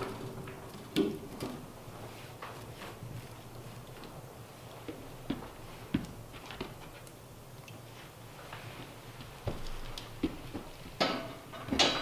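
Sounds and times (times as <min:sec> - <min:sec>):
wood and metal knocks: 0:11.0 - 0:12.0.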